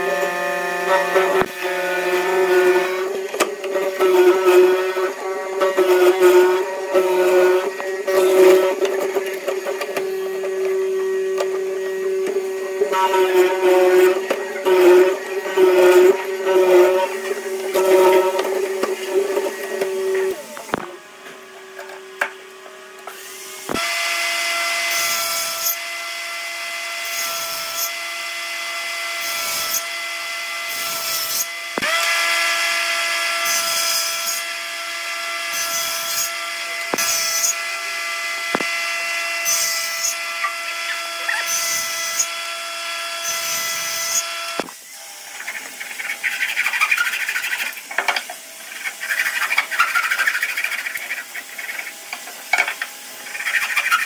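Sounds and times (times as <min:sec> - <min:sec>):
power tool motor whine: 0:00.0 - 0:54.0
tool cutting wood: 0:00.0 - 0:54.0
scraping and crackling: 0:01.1 - 0:21.0.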